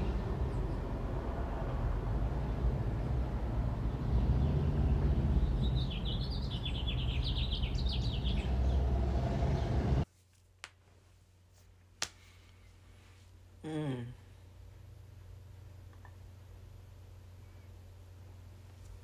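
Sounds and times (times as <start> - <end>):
low rumble: 0.0 - 10.0
bird chirping: 3.9 - 9.8.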